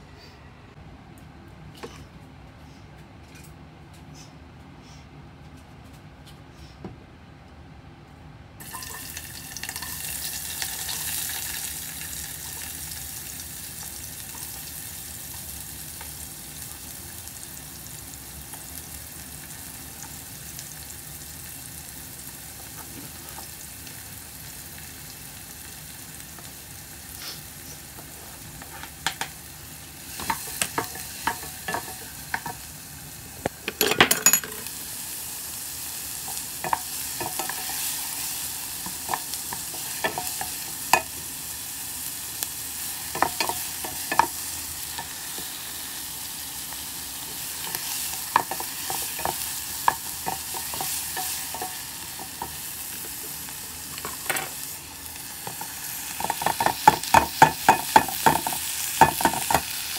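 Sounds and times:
vegetables sizzling in hot oil: 0:08.6 - 0:59.9
utensils knocking against pan: 0:30.2 - 0:32.6, 0:33.7 - 0:34.7, 0:38.8 - 0:41.1, 0:43.1 - 0:44.4, 0:47.6 - 0:53.3, 0:55.4 - 0:59.7.

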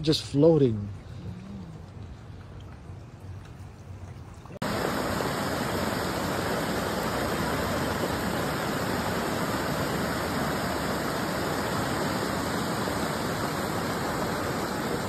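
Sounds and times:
rushing floodwater: 0:04.5 - 0:15.0.

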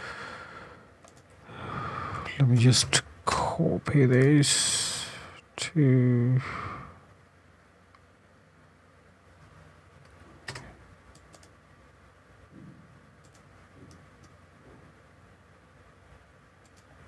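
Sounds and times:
mouse and keyboard clicks: 0:01.0 - 0:01.3, 0:10.0 - 0:11.6, 0:16.6 - 0:16.9.

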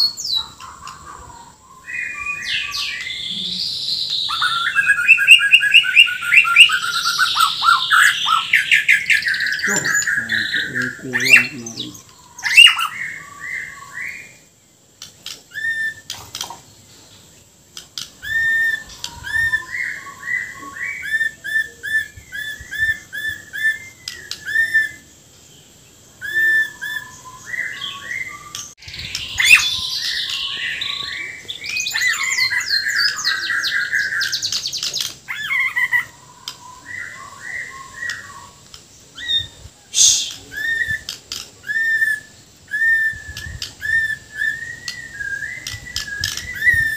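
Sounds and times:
bird singing whistled phrases: 0:01.5 - 0:14.4, 0:15.5 - 0:16.2, 0:18.2 - 0:25.1, 0:26.2 - 0:38.6, 0:39.2 - 0:46.9
bird harsh mimicked notes: 0:09.4 - 0:13.0.

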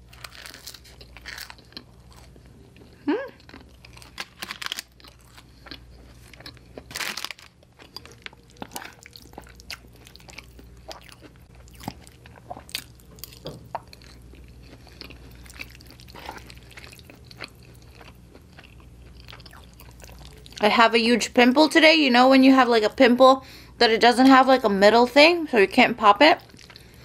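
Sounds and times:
loud crunches: 0:00.0 - 0:02.3, 0:03.4 - 0:11.2
chewing and mouth sounds: 0:00.0 - 0:20.6, 0:26.4 - 0:27.0.

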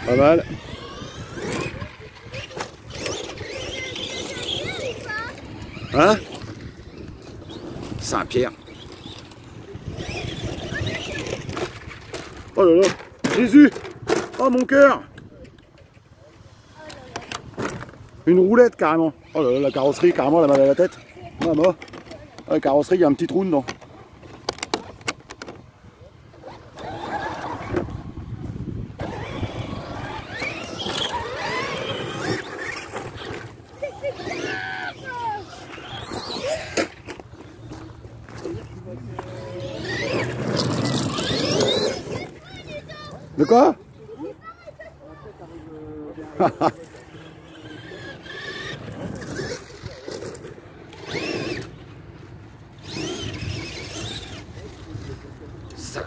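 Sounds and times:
toy truck motor whining: 0:00.0 - 0:12.5, 0:19.2 - 0:22.2, 0:26.3 - 0:28.2, 0:29.0 - 0:43.7, 0:46.8 - 0:51.9, 0:52.8 - 0:55.1.

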